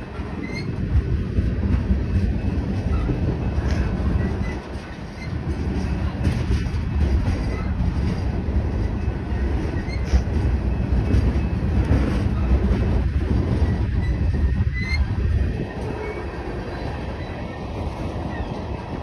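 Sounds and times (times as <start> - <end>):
train wheels rumbling on rails: 0.0 - 19.0
faint high wheel squeaks: 0.3 - 0.8, 9.7 - 10.3, 13.6 - 18.7.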